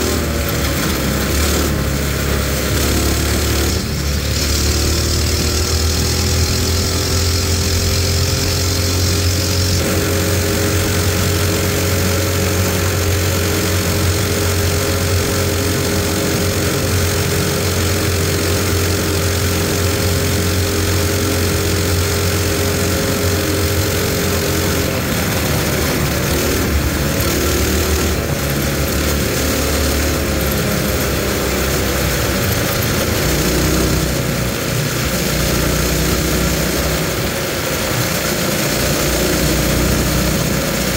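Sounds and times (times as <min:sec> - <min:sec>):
mini bike engine running: 0:00.0 - 0:40.9.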